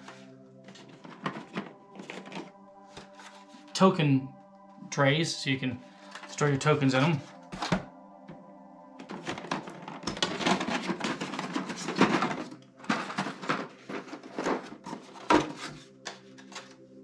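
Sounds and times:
plastic trays clicking and rattling: 0:00.8 - 0:02.5, 0:09.0 - 0:16.7.

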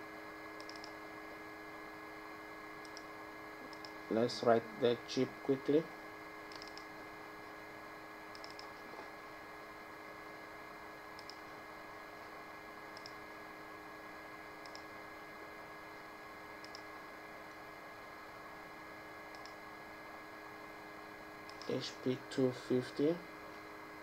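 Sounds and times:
steady hum: 0:00.0 - 0:24.0
computer mouse clicks: 0:00.6 - 0:01.0, 0:02.8 - 0:04.0, 0:06.5 - 0:06.9, 0:08.3 - 0:08.8, 0:11.2 - 0:11.5, 0:12.9 - 0:13.2, 0:14.6 - 0:14.9, 0:16.6 - 0:16.9, 0:19.3 - 0:19.6, 0:21.4 - 0:21.8.

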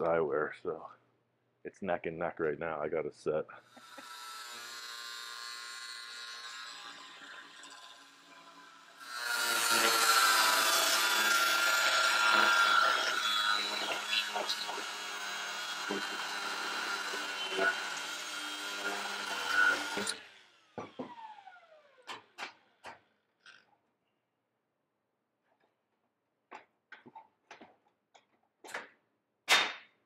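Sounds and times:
power tool cutting steel tube: 0:03.7 - 0:22.6.

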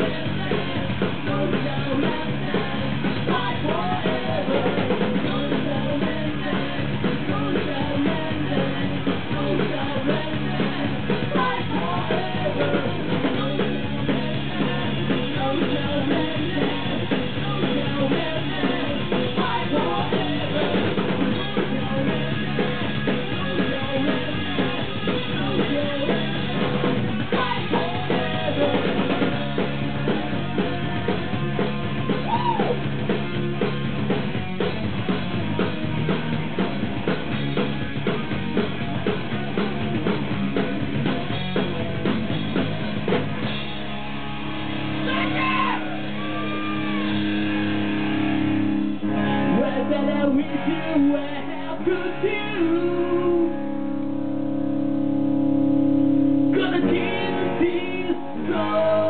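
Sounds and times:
person singing: 0:00.0 - 0:32.8, 0:49.0 - 0:53.8, 0:56.4 - 0:59.0
drum kit: 0:00.0 - 0:59.0
loud electric guitars: 0:00.0 - 0:59.0.

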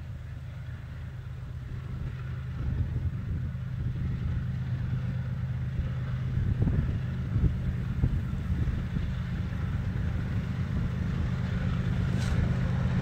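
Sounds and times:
diesel locomotive engine drone: 0:00.0 - 0:13.0.

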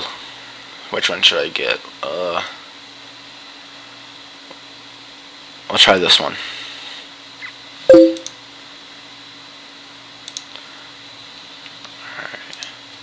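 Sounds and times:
two-note notification chime: 0:07.9 - 0:08.3.

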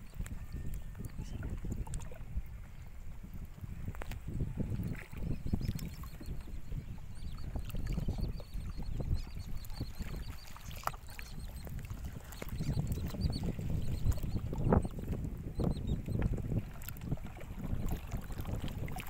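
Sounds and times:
wind on microphone: 0:00.0 - 0:19.0
water splashing: 0:07.5 - 0:15.2, 0:16.1 - 0:19.0.

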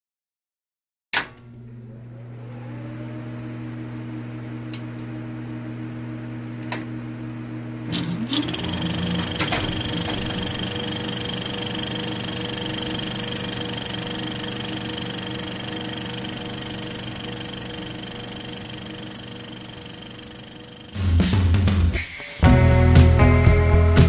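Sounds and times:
film projector whir and rattle: 0:07.8 - 0:21.0
projector clicks: 0:07.9 - 0:16.9.

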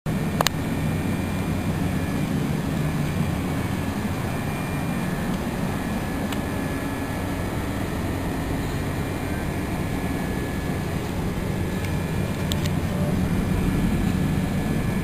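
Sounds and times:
low mechanical rumble: 0:00.1 - 0:15.0.

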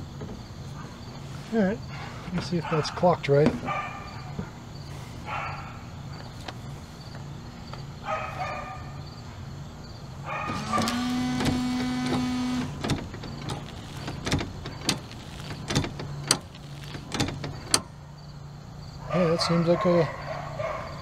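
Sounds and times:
wiper arms clicking and knocking: 0:10.5 - 0:17.9
wiper motor whine: 0:10.5 - 0:17.9.

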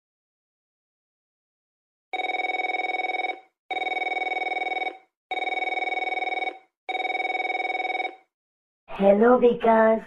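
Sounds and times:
mobile phone ringing: 0:02.1 - 0:08.3.

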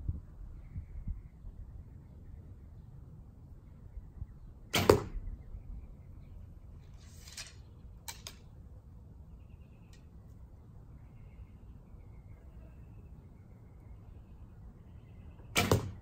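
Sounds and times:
arrow rustle and clicks: 0:06.8 - 0:08.6.

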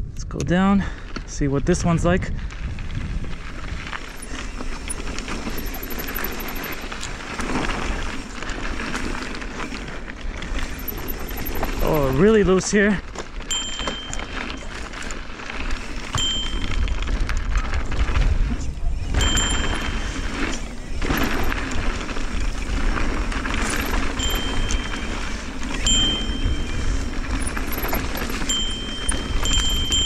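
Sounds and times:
wind buffeting microphone: 0:00.0 - 0:08.2, 0:15.8 - 0:30.0
tyres crunching on loose dirt: 0:00.3 - 0:30.0
bike clicks and rattles: 0:02.0 - 0:30.0.

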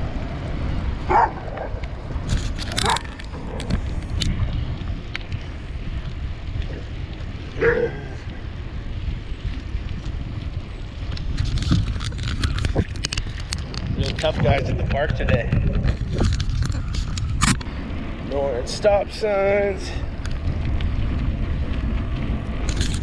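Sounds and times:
wind rumble on microphone: 0:00.0 - 0:23.0
dog barking: 0:01.1 - 0:01.7, 0:02.8 - 0:03.0, 0:07.6 - 0:07.9.

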